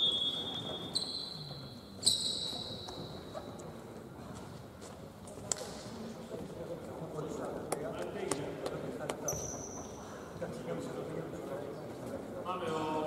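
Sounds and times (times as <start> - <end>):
referee whistle blasts: 0.0 - 1.4.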